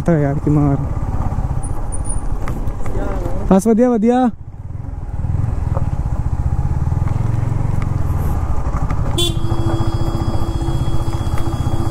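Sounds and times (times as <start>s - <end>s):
motorcycle engine running low: 4.5s - 11.9s
motorcycle horn held: 9.2s - 11.9s.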